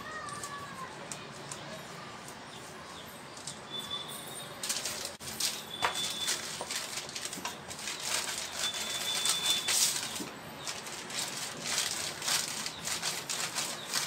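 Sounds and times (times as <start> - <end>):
plastic sheets crinkling: 4.6 - 14.0.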